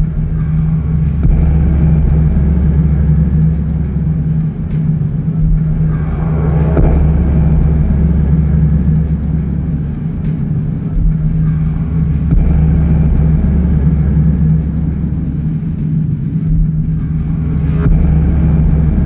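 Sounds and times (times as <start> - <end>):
low machine drone: 0.0 - 19.0
thin high whine: 2.4 - 12.3.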